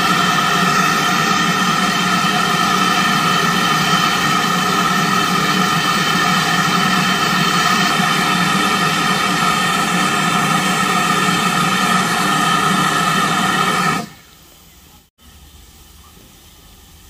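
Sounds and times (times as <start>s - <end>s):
steam locomotive hissing steam: 0.0s - 17.0s.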